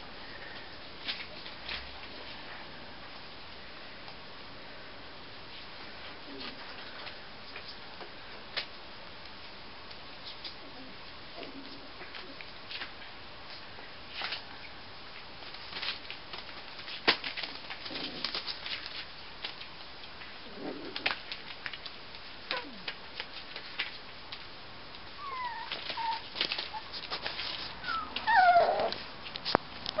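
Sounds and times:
puppy paws clicking and scuffing: 0.4s - 3.3s, 5.5s - 10.6s, 11.4s - 30.0s
puppies whimpering: 25.2s - 26.9s, 27.8s - 29.0s
puppy whining: 25.2s - 27.1s, 27.8s - 29.0s.

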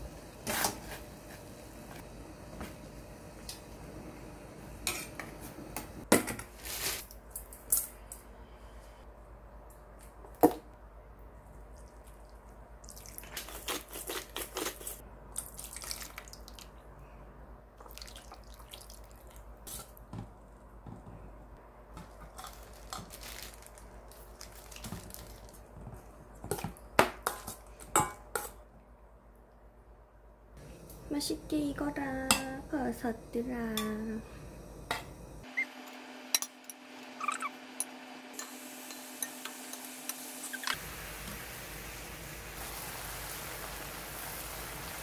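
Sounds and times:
liquid pouring and splashing: 15.4s - 16.8s, 17.8s - 19.4s.

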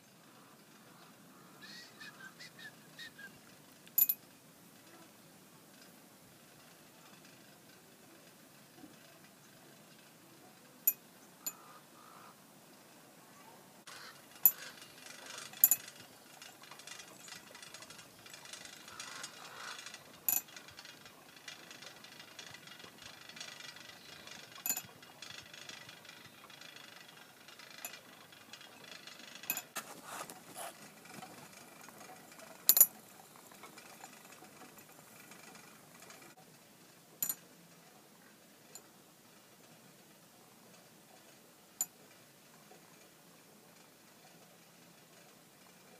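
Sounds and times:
sharp ringing clicks and clinks: 3.9s - 4.2s, 10.8s - 11.7s, 14.3s - 29.8s, 31.3s - 36.4s, 37.2s - 37.4s.

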